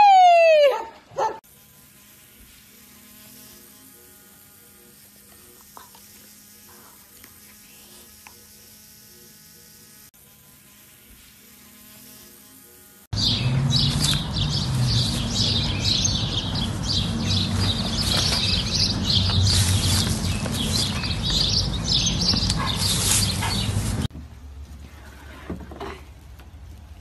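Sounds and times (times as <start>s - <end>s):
faint buzzing hum: 1.0s - 24.8s.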